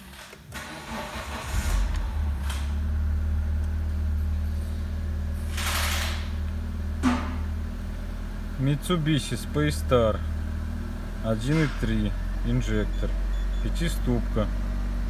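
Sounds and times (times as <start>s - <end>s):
car engine starting and idling: 0.0s - 15.0s
brief rushing noise: 1.0s - 3.6s.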